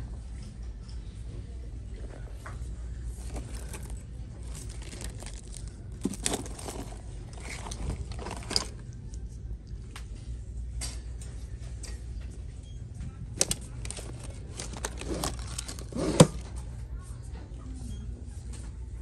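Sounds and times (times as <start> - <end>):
steady low hum: 0.0 - 19.0
wallets rustling and clicking: 3.0 - 8.9, 13.3 - 16.6.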